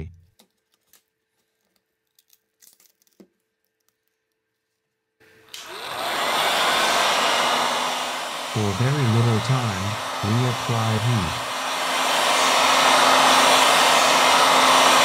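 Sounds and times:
heat gun blowing air: 5.4s - 15.0s.

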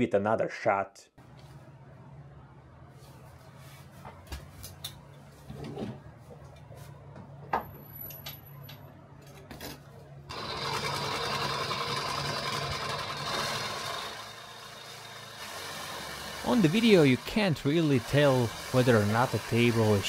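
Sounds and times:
power tool buzzing: 10.3s - 20.0s.

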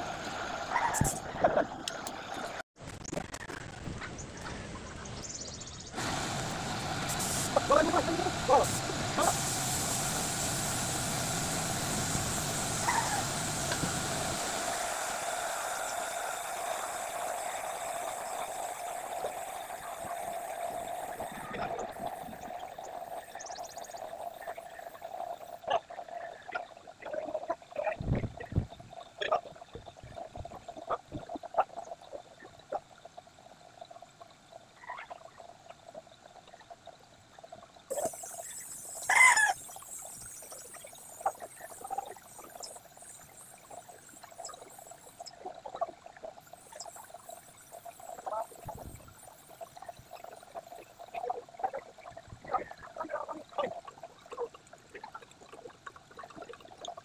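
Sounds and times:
spray gun hissing: 6.0s - 25.1s, 37.9s - 45.3s.

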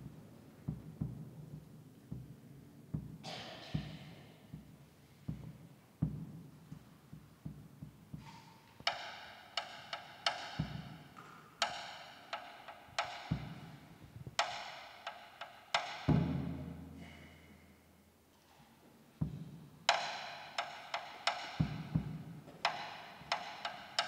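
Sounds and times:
soft low drum hits: 0.6s - 6.4s, 16.1s - 17.2s.

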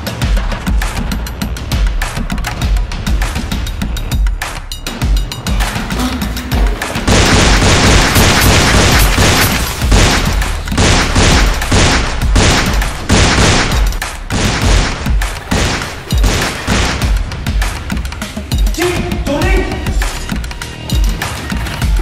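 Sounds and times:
rapid gunfire: 7.0s - 17.6s.

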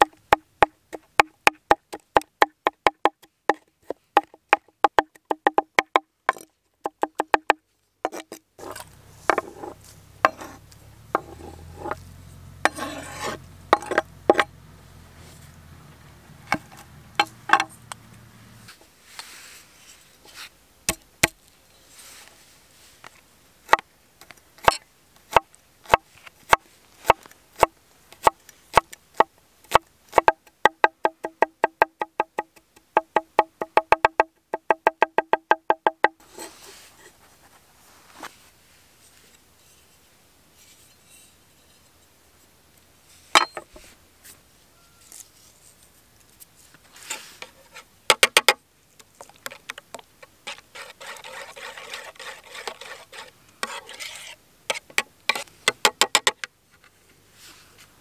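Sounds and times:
knife chopping on wooden board: 4.9s - 10.6s
knife scraping cutting board: 8.1s - 10.6s, 11.2s - 12.0s, 12.7s - 14.0s, 36.2s - 37.2s, 50.5s - 55.5s.

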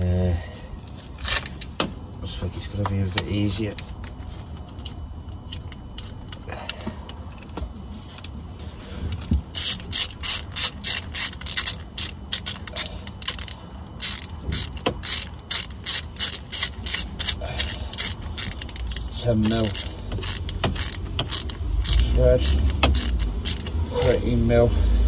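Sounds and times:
socket ratchet clicking: 9.5s - 24.2s.

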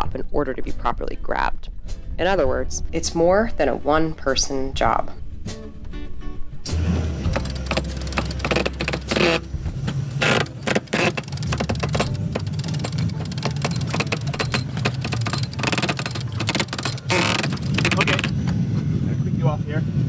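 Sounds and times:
knocks and clicks from mast rigging: 7.3s - 18.4s.

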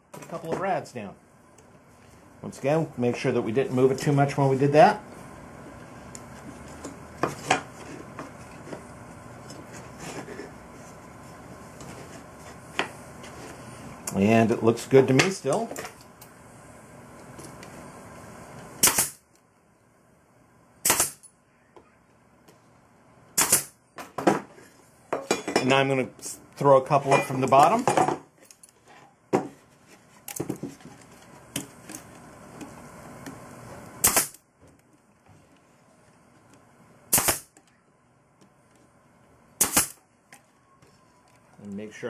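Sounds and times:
brad nailer firing: 18.8s - 19.2s, 20.8s - 21.2s, 23.4s - 23.8s, 34.0s - 34.4s, 37.1s - 37.6s, 39.6s - 40.0s.

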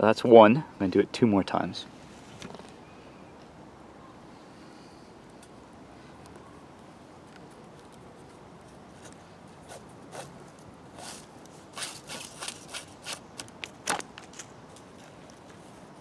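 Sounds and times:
rope scraping against wooden poles: 8.3s - 15.7s.

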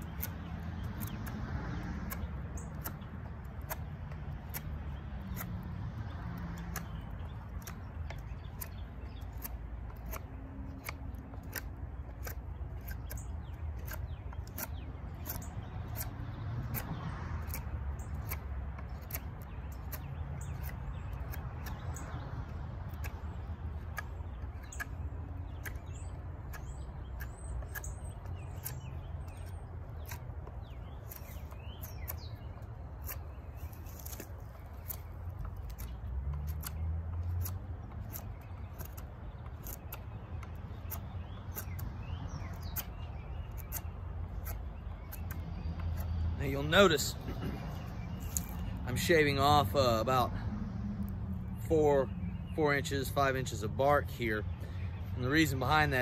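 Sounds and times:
birds chirping: 0.0s - 56.0s
knife whittling wood: 6.5s - 22.1s.

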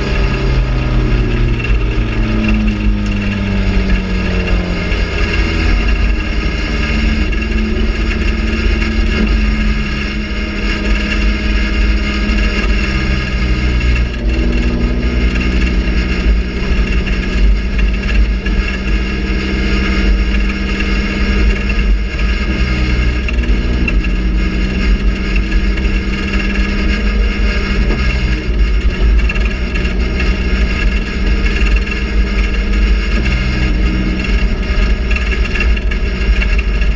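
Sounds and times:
race car engine revving: 0.0s - 36.9s.

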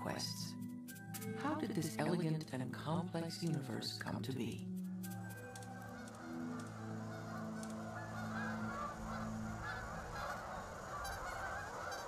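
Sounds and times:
geese honking: 4.9s - 12.0s.

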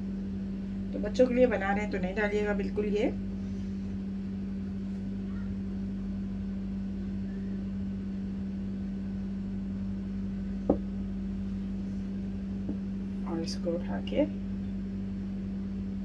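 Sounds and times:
steady low hum: 0.0s - 16.0s
brief knock: 10.7s - 10.9s.

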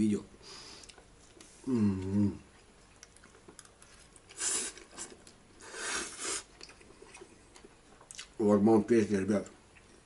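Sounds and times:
quiet chewing: 0.7s - 8.4s
short hissing noises: 5.6s - 6.5s.

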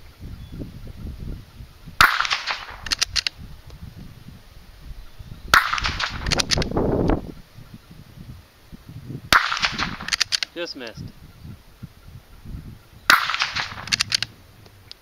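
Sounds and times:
rifle shots with echo: 2.0s - 3.0s, 5.5s - 6.5s, 9.3s - 10.5s, 13.1s - 14.3s
rifle bolt metallic clicks: 2.0s - 3.4s, 9.4s - 10.6s, 13.1s - 15.0s.

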